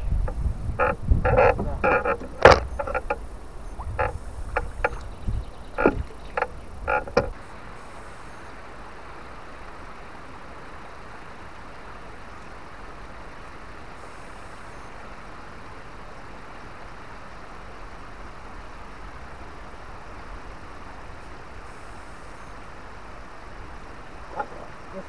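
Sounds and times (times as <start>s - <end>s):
steady hiss: 0.0s - 25.0s
knocks on boat deck: 0.8s - 3.2s.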